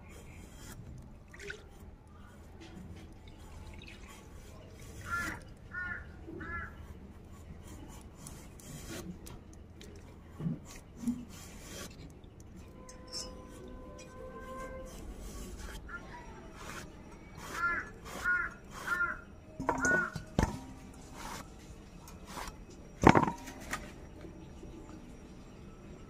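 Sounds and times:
rind scraping against metal blade: 10.6s - 22.6s.

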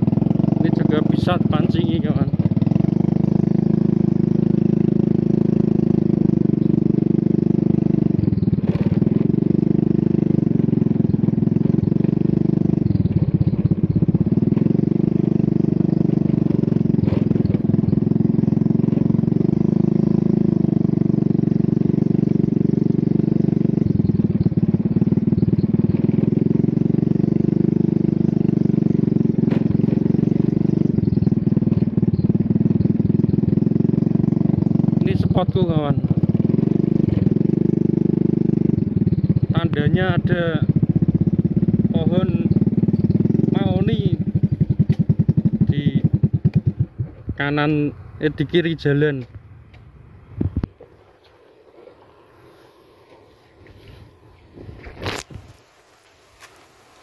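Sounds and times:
small motorcycle engine running: 0.0s - 57.0s.

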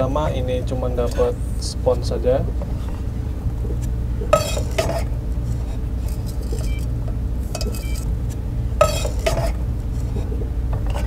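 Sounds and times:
steady low hum: 0.0s - 11.0s
metal camping pots clinking: 4.3s - 8.1s, 8.8s - 10.1s.

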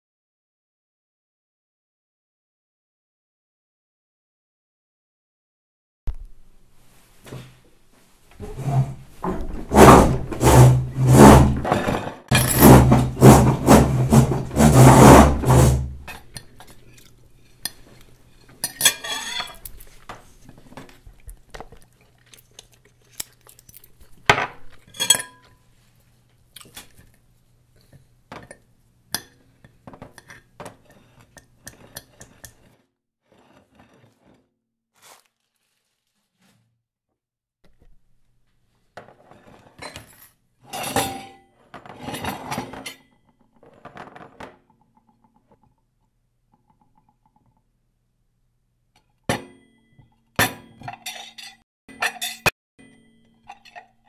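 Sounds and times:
cutlery scraping on a plate: 11.6s - 21.1s, 24.5s - 25.7s, 27.8s - 32.8s, 39.0s - 44.2s, 50.5s - 54.0s.

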